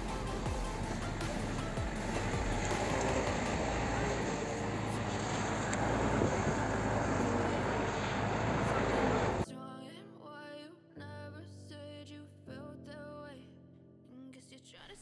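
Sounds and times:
truck engine and road noise: 0:00.0 - 0:09.4.

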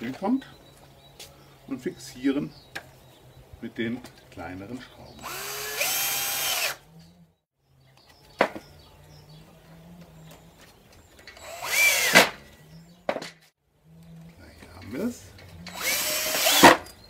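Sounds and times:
cordless drill driving screws: 0:05.2 - 0:06.8, 0:11.3 - 0:12.4, 0:15.7 - 0:16.9.

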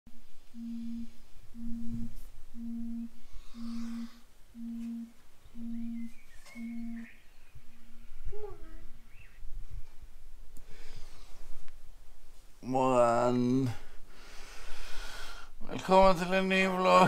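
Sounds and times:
low steady beeps: 0:00.5 - 0:08.2.

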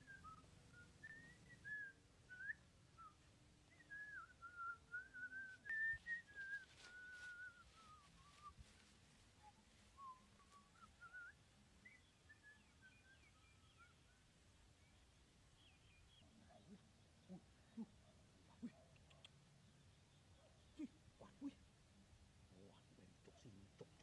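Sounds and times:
person whistling faintly: 0:00.0 - 0:08.6, 0:09.5 - 0:13.9.

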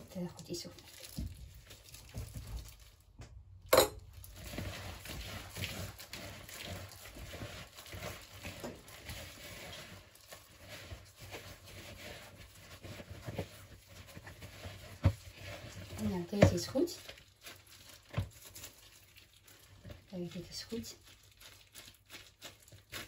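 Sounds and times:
plastic glove rustling: 0:00.0 - 0:23.0
sticky dough squishing: 0:00.0 - 0:23.0.

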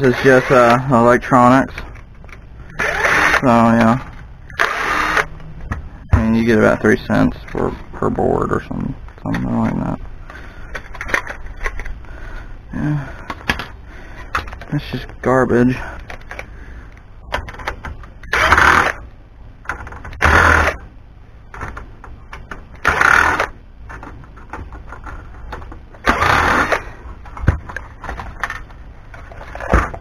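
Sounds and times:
cordless drill running: 0:02.8 - 0:03.4, 0:04.6 - 0:05.3, 0:18.3 - 0:19.0, 0:20.2 - 0:20.8, 0:22.8 - 0:23.5, 0:26.1 - 0:26.8
clicks and knocks of parts handled: 0:09.0 - 0:12.0, 0:13.2 - 0:14.8, 0:16.0 - 0:18.3.

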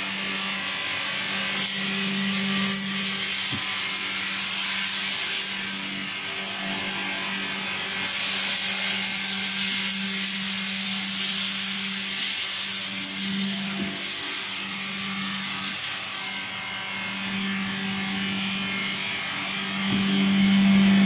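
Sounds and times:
machine hum: 0:08.7 - 0:21.0.

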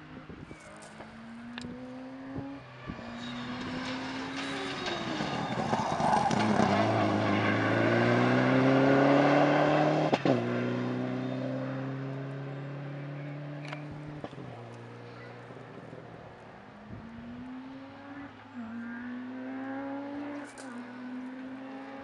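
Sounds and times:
rally car engine accelerating: 0:00.9 - 0:15.6, 0:16.6 - 0:22.0.

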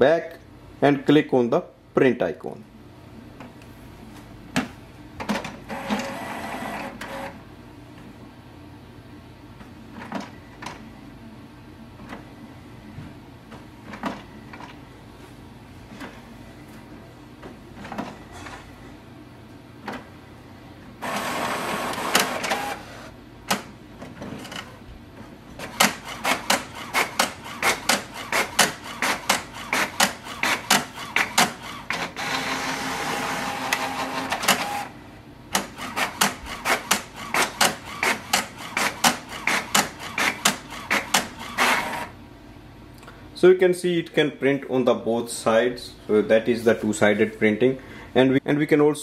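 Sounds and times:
printer motor whirring: 0:05.7 - 0:07.4, 0:21.0 - 0:23.7, 0:25.6 - 0:42.2
fast mechanical clicking: 0:25.6 - 0:32.5, 0:35.5 - 0:42.1.

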